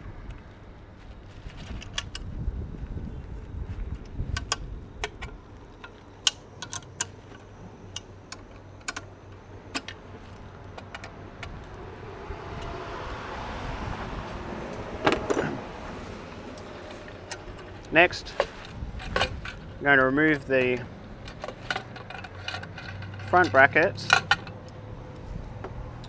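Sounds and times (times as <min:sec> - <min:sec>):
tools clicking on metal: 0:04.4 - 0:09.1, 0:20.6 - 0:24.8
tools clattering: 0:16.6 - 0:19.8, 0:20.4 - 0:24.7.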